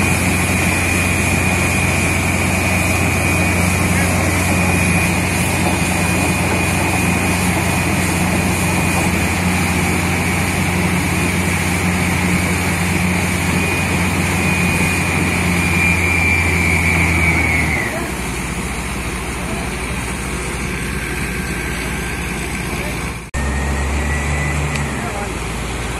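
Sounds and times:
compressed air rushing: 0.0s - 23.3s
drilling rig engine hum: 0.0s - 25.9s
steady high whine: 0.0s - 25.9s.

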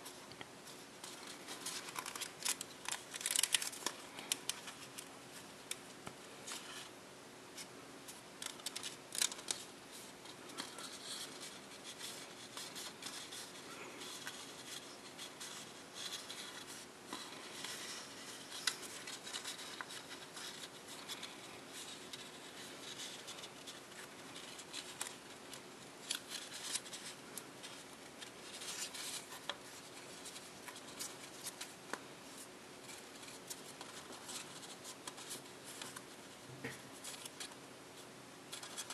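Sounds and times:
paper crackling and rustling: 0.0s - 6.9s, 7.6s - 38.9s.

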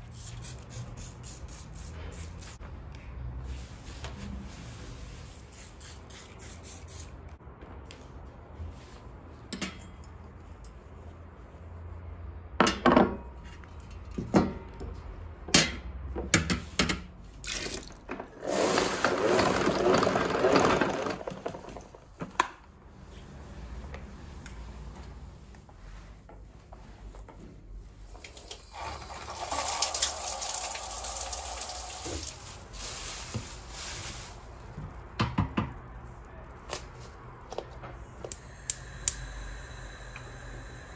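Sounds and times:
running water: 28.3s - 32.8s.

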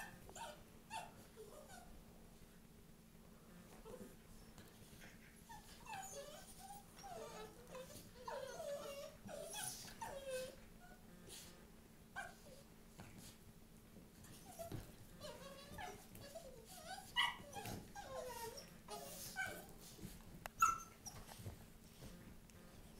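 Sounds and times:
small dogs growling and whimpering: 4.9s - 11.5s, 14.3s - 20.0s.

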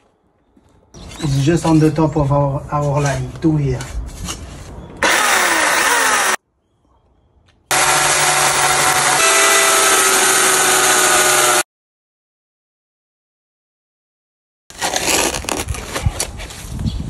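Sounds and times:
power tool whining: 5.0s - 6.4s, 7.7s - 11.7s.

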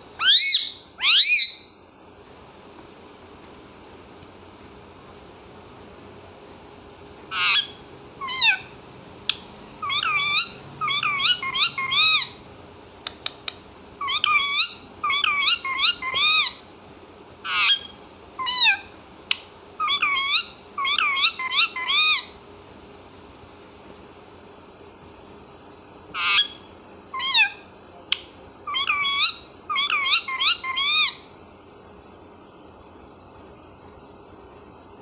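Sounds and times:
parakeet calling: 0.2s - 1.8s, 7.3s - 12.4s, 14.0s - 16.7s, 17.4s - 18.9s, 19.8s - 22.4s, 26.1s - 27.7s, 28.6s - 31.3s
sharp clicks: 13.0s - 13.6s.

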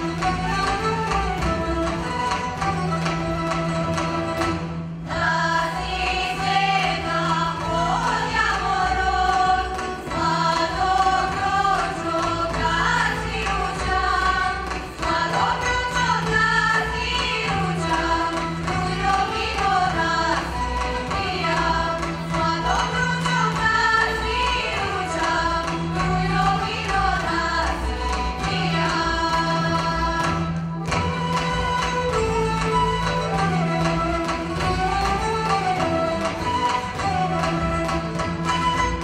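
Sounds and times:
women singing in parts: 5.1s - 31.0s.

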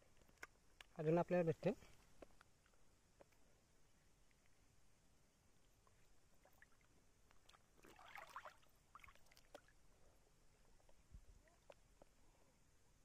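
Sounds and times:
water splashing and dripping: 6.4s - 9.7s
loud splash: 7.8s - 9.1s.

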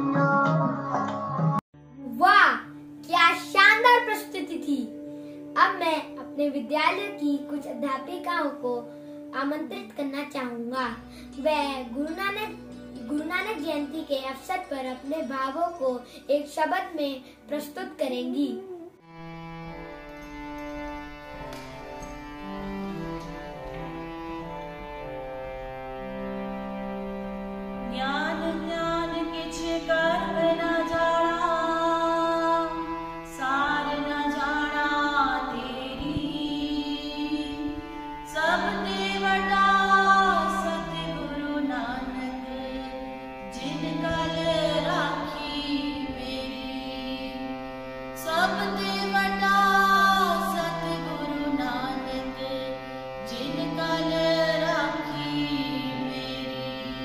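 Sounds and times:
harmonium held notes: 19.0s - 57.0s
women singing together: 33.4s - 47.6s.

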